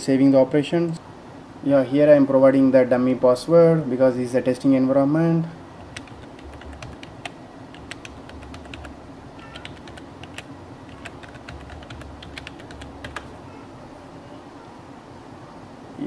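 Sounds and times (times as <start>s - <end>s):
keyboard keystroke clicks: 5.9s - 9.0s, 9.6s - 13.3s.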